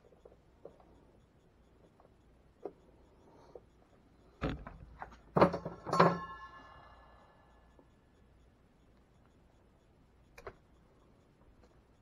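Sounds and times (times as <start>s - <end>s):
tools knocking and clattering: 4.4s - 6.5s.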